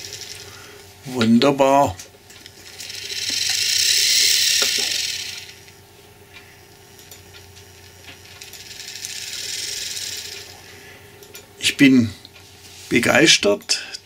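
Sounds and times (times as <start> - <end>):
model train motor whirring: 0.0 - 0.6, 2.4 - 5.7, 8.2 - 10.6.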